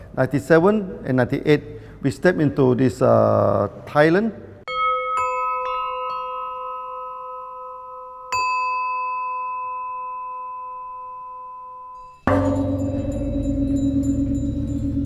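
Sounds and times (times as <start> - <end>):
bell chime ringing: 4.7 - 15.0
faint high tinkling: 4.7 - 15.0
low drone: 12.3 - 15.0.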